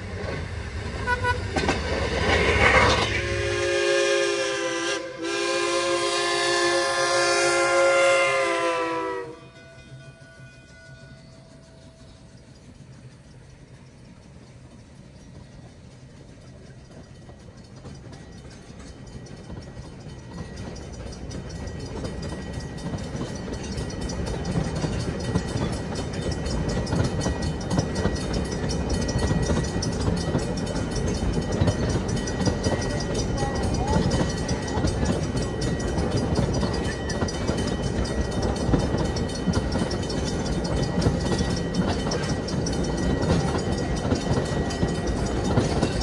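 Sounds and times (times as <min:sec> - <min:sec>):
train rumble and wheel clatter: 0:00.0 - 0:46.0.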